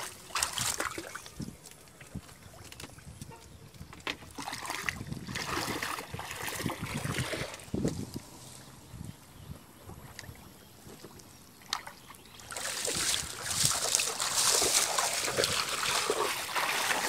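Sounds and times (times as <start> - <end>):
shallow water splashing: 0.0 - 2.6, 4.3 - 7.8, 11.6 - 17.0.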